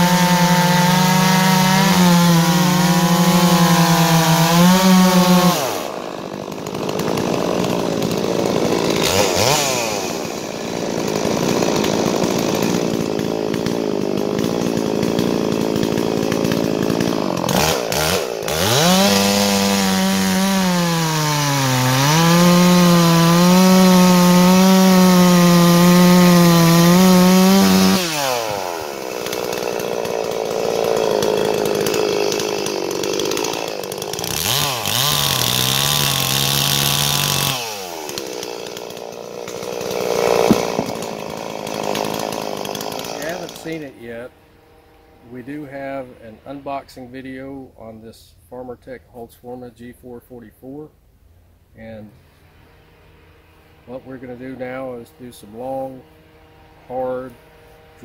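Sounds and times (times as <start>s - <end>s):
chainsaw cutting log: 0.0s - 50.9s, 51.8s - 58.0s.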